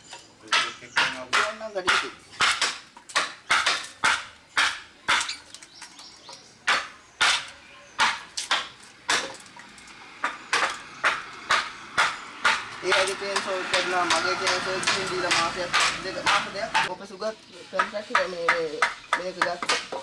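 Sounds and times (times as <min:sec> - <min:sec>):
chisel knocking into wood: 0:10.6 - 0:16.9.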